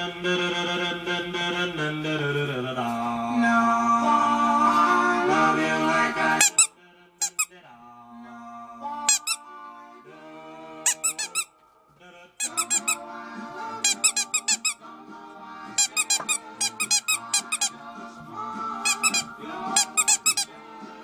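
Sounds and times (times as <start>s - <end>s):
rubber squeaky toy squeaking: 6.4s - 7.5s, 9.1s - 9.4s, 10.9s - 11.5s, 12.4s - 13.0s, 13.8s - 14.8s, 15.8s - 17.8s, 18.8s - 20.6s.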